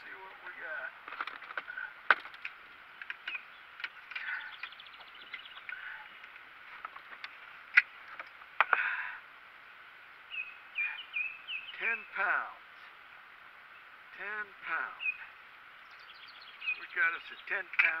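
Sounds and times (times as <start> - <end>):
scraping rustle: 0.2 - 8.4
knocks and rattles of equipment: 1.0 - 2.5.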